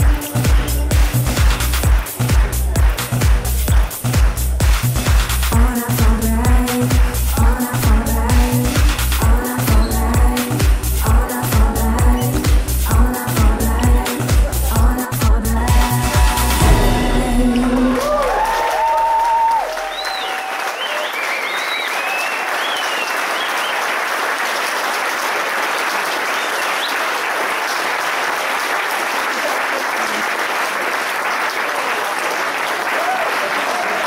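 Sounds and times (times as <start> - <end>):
audience applause: 0.0 - 5.2, 15.8 - 34.0
dance music with heavy beat: 0.0 - 20.0
high cheers: 15.7 - 23.8, 31.9 - 34.0.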